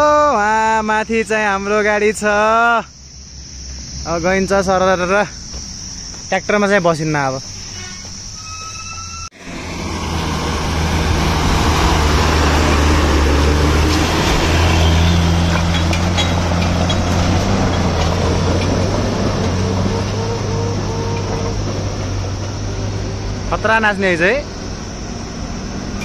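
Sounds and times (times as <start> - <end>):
heavy diesel engine running: 9.4 - 26.0.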